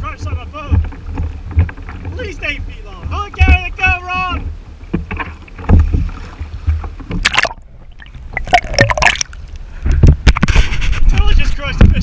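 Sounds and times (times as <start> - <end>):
water sloshing and gurgling: 0.0 - 12.0
knocks and splashes from handling: 0.2 - 10.7.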